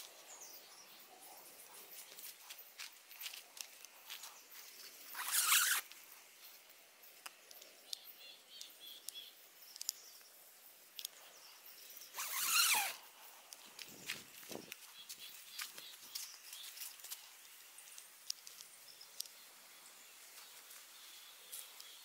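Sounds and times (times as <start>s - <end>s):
faint ticks and rustling: 0.0s - 5.2s, 5.8s - 12.2s, 13.0s - 22.0s
tent zipper: 5.1s - 5.9s, 12.1s - 13.0s.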